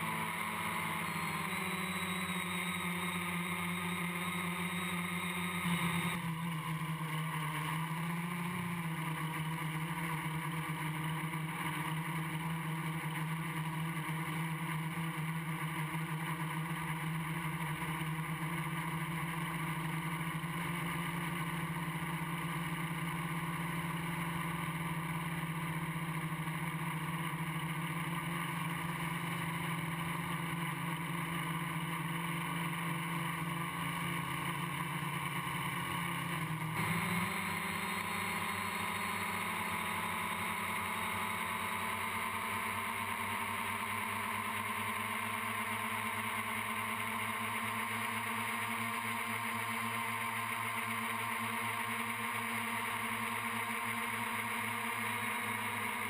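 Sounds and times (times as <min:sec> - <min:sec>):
drone propellers buzzing: 0:00.0 - 0:08.0, 0:29.3 - 0:44.6.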